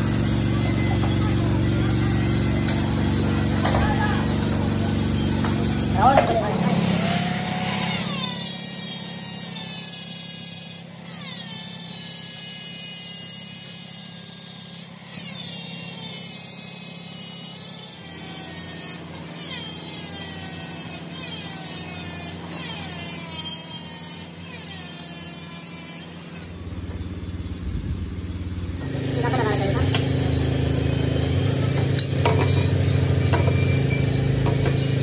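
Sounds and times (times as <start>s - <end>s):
lathe motor hum: 0.0s - 9.6s, 28.3s - 35.0s
grinder sharp scrape: 0.0s - 26.8s, 27.5s - 35.0s
die grinder high whine: 0.0s - 35.0s.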